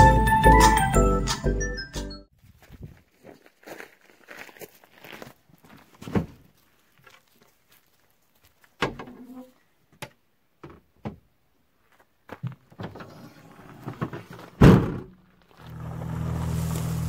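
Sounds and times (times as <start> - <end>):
car rear door slamming: 14.6 - 15.1.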